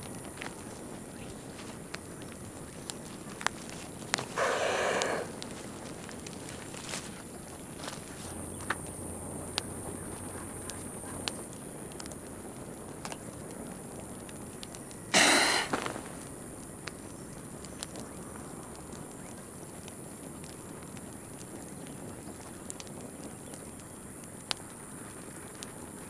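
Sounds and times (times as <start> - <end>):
light ticks and steps: 0.0 - 26.0
high insect buzz: 4.3 - 5.4, 15.1 - 16.1.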